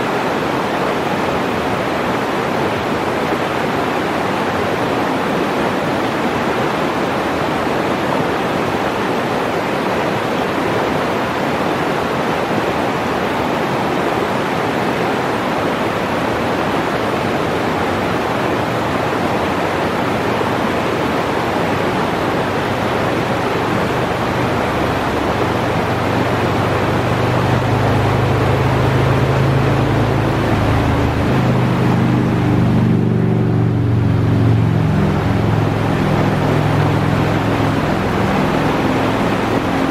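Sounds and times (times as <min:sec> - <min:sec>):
river rushing over rocks: 0:00.0 - 0:39.9
vehicle engine hum: 0:17.7 - 0:39.9.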